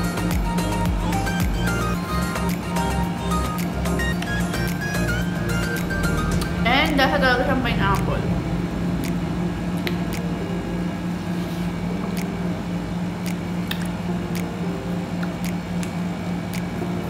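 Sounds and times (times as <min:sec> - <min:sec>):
steady low hum: 0:00.0 - 0:17.0
mouth sucking and smacking: 0:13.6 - 0:14.5.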